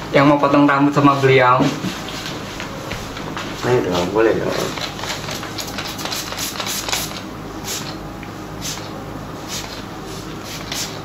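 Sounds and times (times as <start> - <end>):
spray bottle hissing sprays: 4.5 - 8.0, 8.6 - 11.0.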